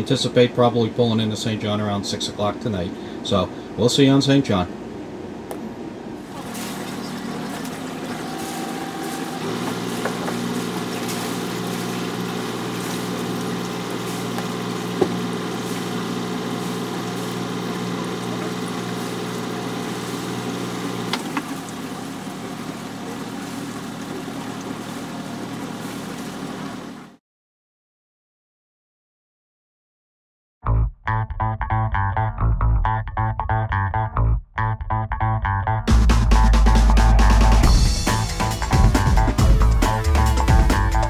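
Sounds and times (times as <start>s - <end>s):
boat engine humming: 0.0s - 27.2s, 35.9s - 41.0s.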